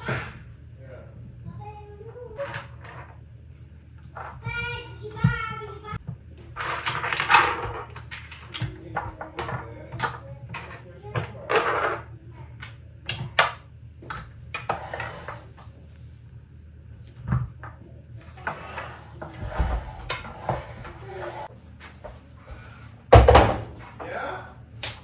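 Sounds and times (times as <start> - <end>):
objects knocking and clattering: 2.0 - 3.3, 4.0 - 15.5, 23.1 - 24.1.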